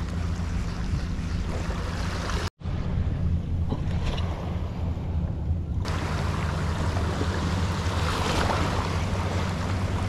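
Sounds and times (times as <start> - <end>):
waves splashing over rocks: 5.9 - 10.0.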